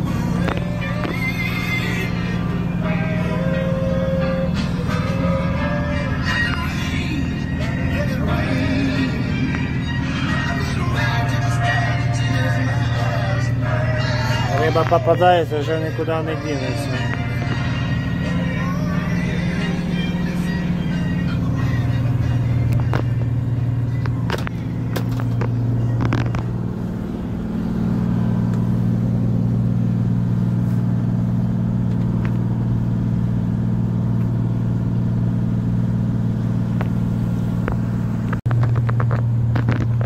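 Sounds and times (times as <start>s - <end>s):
boat engine drone: 0.0s - 40.0s
knocks and clicks in cabin: 24.0s - 26.5s.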